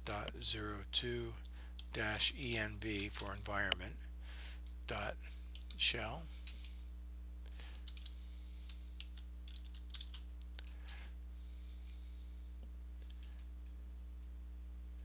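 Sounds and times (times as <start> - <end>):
keyboard keys tapping: 7.8 - 8.1, 9.0 - 10.6.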